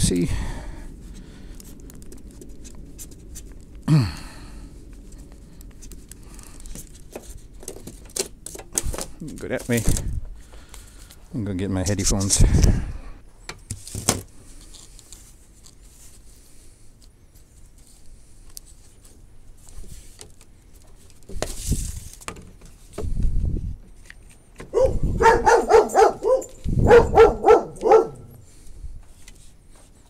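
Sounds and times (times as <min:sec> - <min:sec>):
rustling: 0:00.7 - 0:11.3, 0:13.6 - 0:30.0
dog barking: 0:24.7 - 0:28.4.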